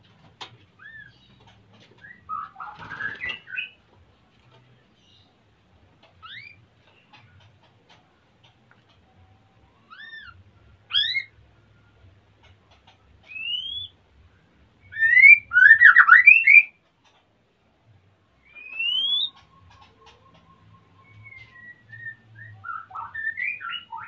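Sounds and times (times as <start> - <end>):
bird singing whistled phrases: 9.9 - 11.3, 13.3 - 14.0, 14.9 - 16.7, 18.4 - 19.4, 21.0 - 24.0.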